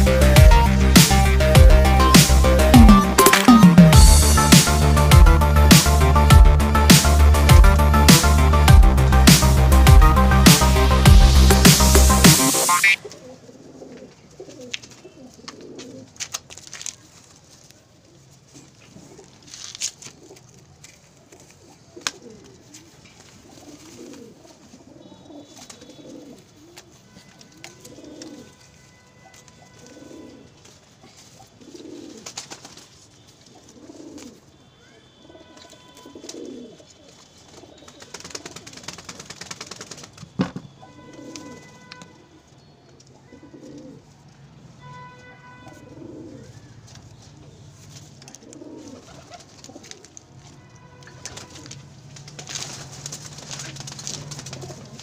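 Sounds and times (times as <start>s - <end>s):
pigeons cooing: 12.8s - 16.2s, 21.3s - 26.9s, 27.7s - 28.6s, 29.6s - 32.5s, 33.5s - 34.5s, 35.3s - 40.2s, 40.8s - 42.4s, 43.2s - 44.1s, 45.7s - 46.7s, 48.2s - 50.2s, 52.5s - 55.0s
rustling: 13.2s - 34.4s, 46.9s - 55.0s.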